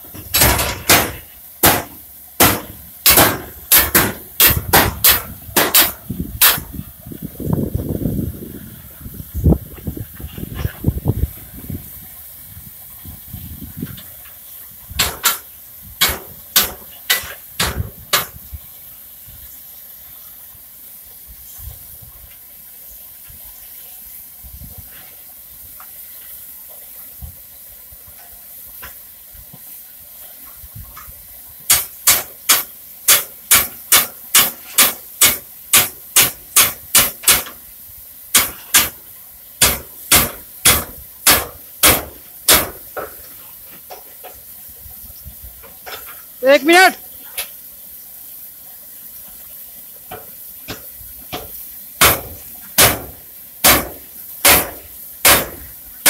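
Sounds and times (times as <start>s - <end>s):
steam hissing: 0.0s - 56.0s.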